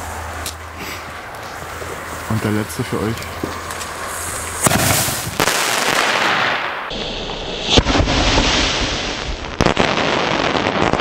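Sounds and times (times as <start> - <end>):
sharp cracks: 3.2 - 11.0
fire pot sparks hissing: 3.6 - 5.9.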